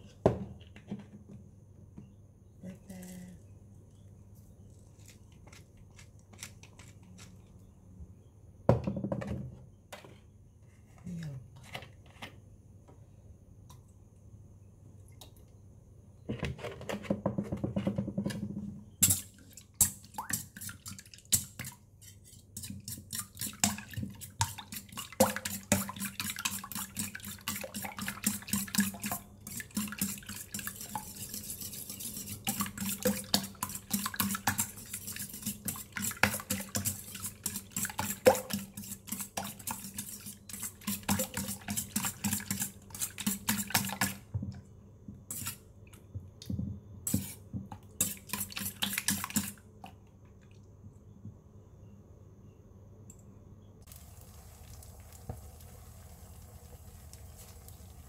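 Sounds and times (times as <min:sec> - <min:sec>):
fork beating eggs in metal bowl: 0:19.0 - 0:44.3, 0:48.0 - 0:49.6
milk pouring into a bowl: 0:53.9 - 0:58.0.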